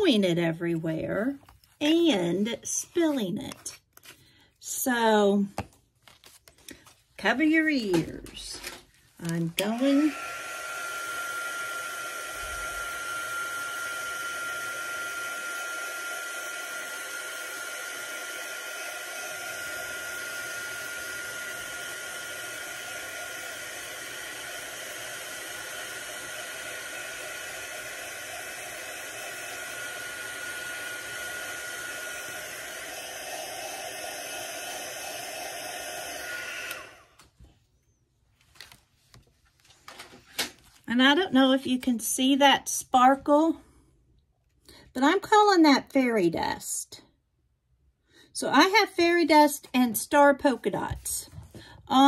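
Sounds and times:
heat gun blowing: 9.2 - 37.2.

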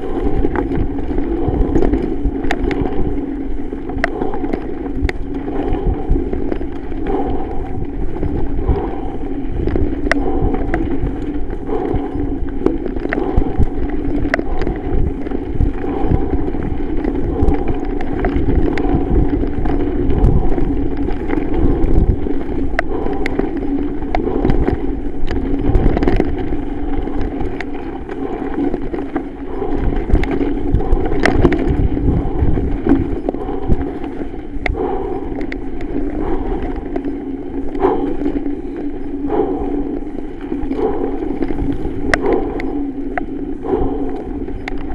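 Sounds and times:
bike rattling over bumps: 0.0 - 44.9
bike tyres rumbling over dirt: 0.0 - 44.9
wind on microphone: 0.0 - 44.9.

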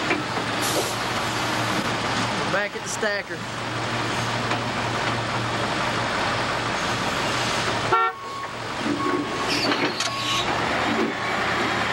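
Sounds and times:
forklift engine running: 0.0 - 11.9
forklift horn toot: 7.9 - 10.5.

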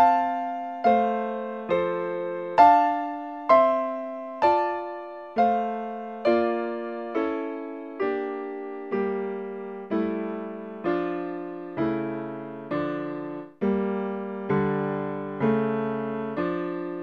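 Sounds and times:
keyboard chords: 0.0 - 17.0.

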